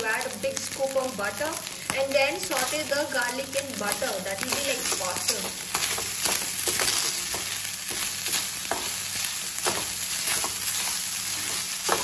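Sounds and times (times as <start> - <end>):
rice sizzling in frying pan: 0.0 - 12.0
spatula scraping pan: 4.5 - 12.0.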